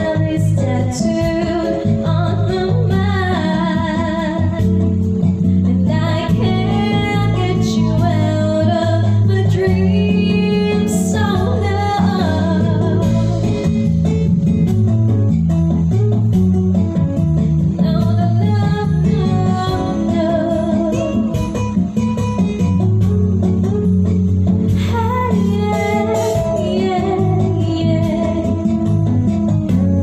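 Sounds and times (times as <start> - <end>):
woman singing into microphone: 0.0 - 13.5, 17.8 - 21.5, 24.8 - 29.9
guitar backing: 0.0 - 30.0.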